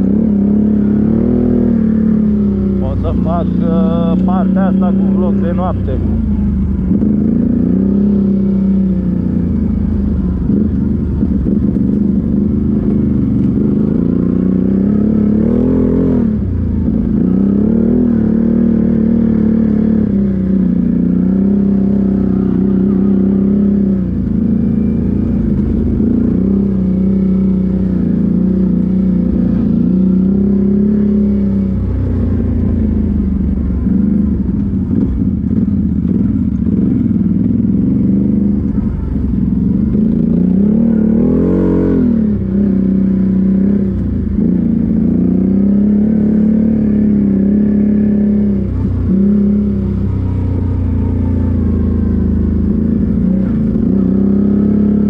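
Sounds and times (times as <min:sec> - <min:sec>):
quad bike engine revving: 0:00.0 - 0:55.0.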